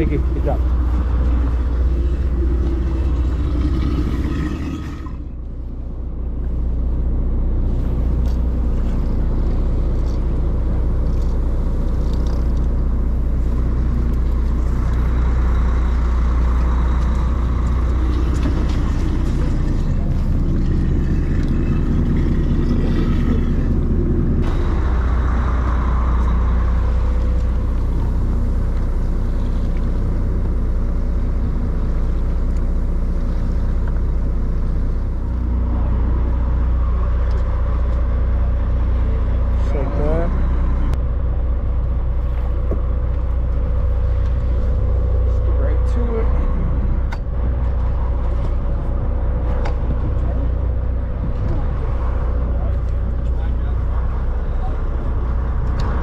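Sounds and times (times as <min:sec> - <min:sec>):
boat engine rumbling: 0:00.0 - 0:56.0.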